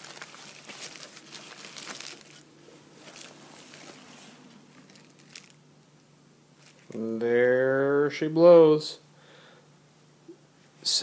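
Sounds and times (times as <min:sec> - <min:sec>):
plastic and bubble wrap crinkling: 0:00.0 - 0:05.6, 0:06.6 - 0:07.0.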